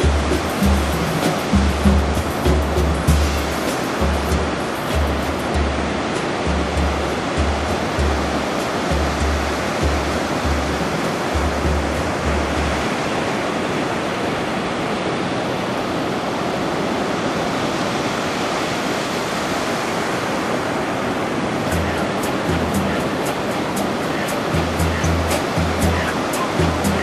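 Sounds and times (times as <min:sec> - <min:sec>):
background music with bass: 0:00.0 - 0:13.0, 0:21.7 - 0:27.0
surf washing on beach: 0:00.0 - 0:27.0.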